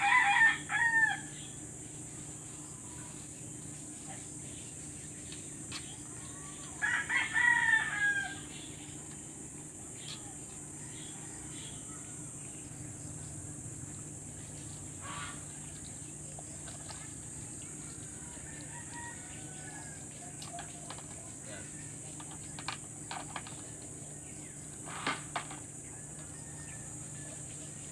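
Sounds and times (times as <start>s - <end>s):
rooster crowing: 0.0s - 1.5s, 6.8s - 8.6s, 10.7s - 12.1s, 18.2s - 20.2s, 25.9s - 27.5s.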